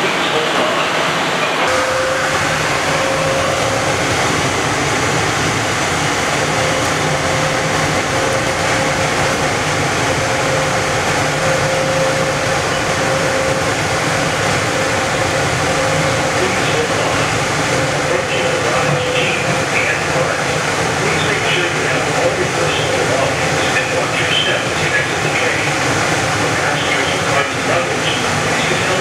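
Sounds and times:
steady whine: 0:00.0 - 0:29.0.

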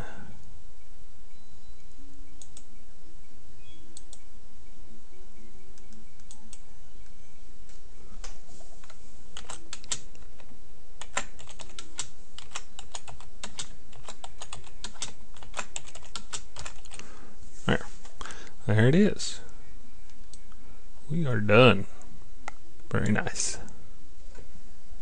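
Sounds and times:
typing on computer keyboard: 0:09.4 - 0:10.1, 0:11.0 - 0:17.0.

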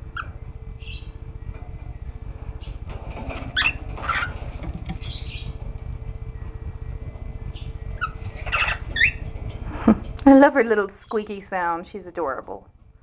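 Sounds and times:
cockatiel chirping: 0:03.6 - 0:04.4, 0:05.0 - 0:05.5, 0:07.6 - 0:09.2.

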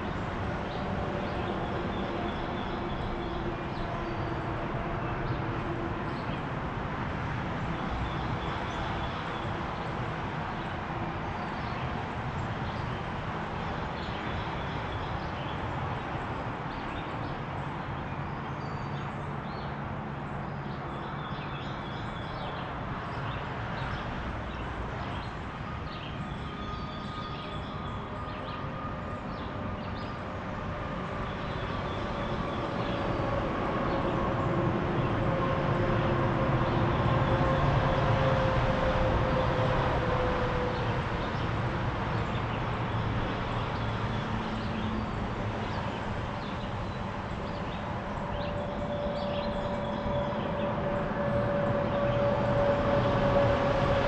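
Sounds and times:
highway traffic hum: 0:00.0 - 0:54.0
vehicle drone: 0:22.5 - 0:54.0.

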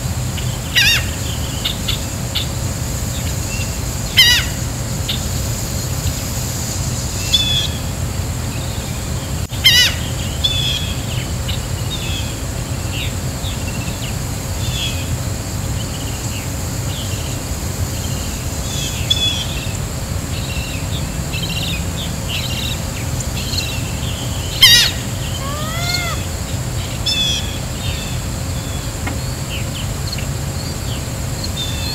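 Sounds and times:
loud sweeping bird call: 0:00.4 - 0:02.5, 0:03.4 - 0:05.2, 0:09.5 - 0:11.2, 0:20.3 - 0:28.9
birds chirping: 0:15.8 - 0:31.9.

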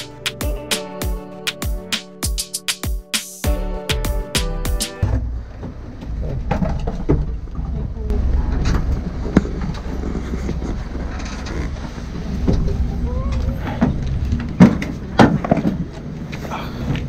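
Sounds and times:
knocks and thumps of people climbing: 0:05.0 - 0:17.0.

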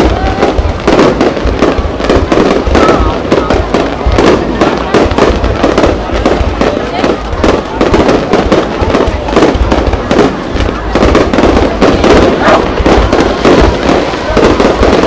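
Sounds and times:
firework bangs and crackles: 0:00.0 - 0:15.0.

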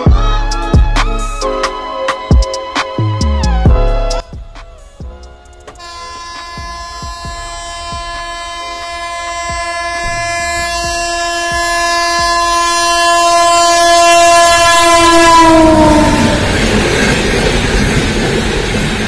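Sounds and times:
train rushing past: 0:01.4 - 0:19.0
train horn long note: 0:05.8 - 0:16.6.

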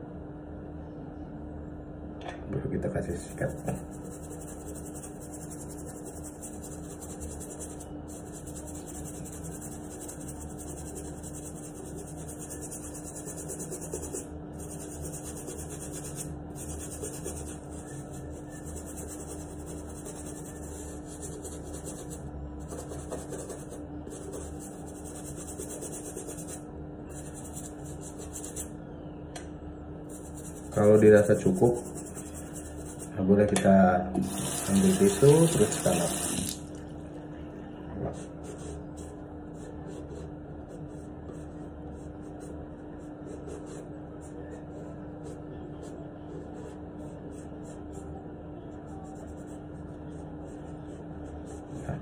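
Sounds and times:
toothbrush scrubbing a sneaker: 0:03.2 - 0:28.7, 0:30.1 - 0:33.2, 0:34.3 - 0:36.4.

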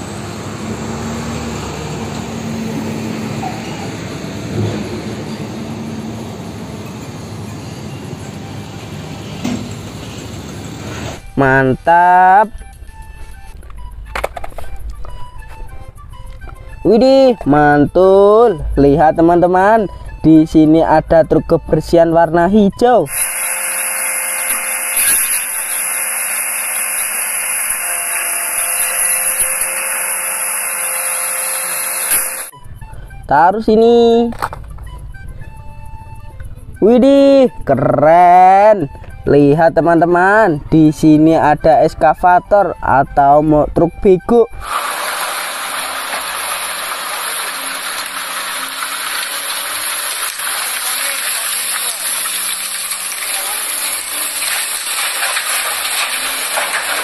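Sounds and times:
excavator diesel engine running: 0:00.0 - 0:11.4, 0:44.5 - 0:57.0
garbage truck hissing: 0:00.0 - 0:11.4, 0:44.5 - 0:57.0.

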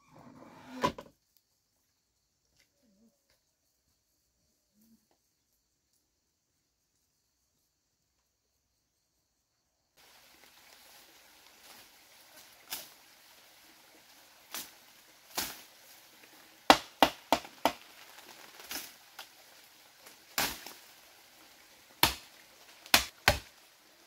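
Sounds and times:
machete chopping bamboo: 0:16.7 - 0:17.8, 0:22.0 - 0:22.3, 0:22.9 - 0:23.5.

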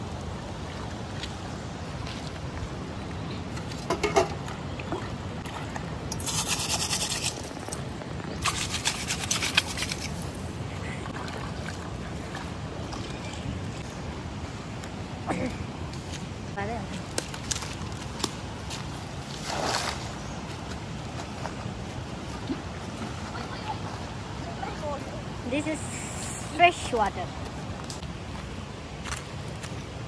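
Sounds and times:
river trickling over stones: 0:00.0 - 0:15.2, 0:15.9 - 0:30.0
splashing and scrubbing: 0:03.5 - 0:13.3, 0:19.2 - 0:25.0.

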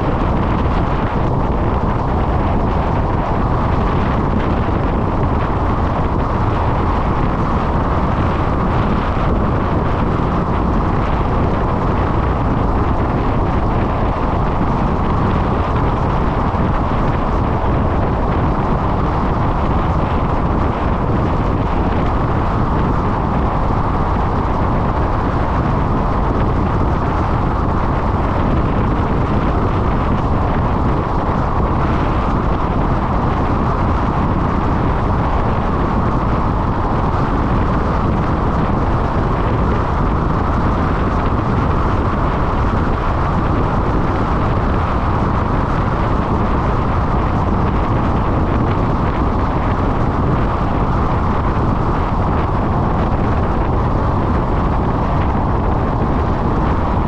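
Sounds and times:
car wind and road noise: 0:00.0 - 0:57.0.

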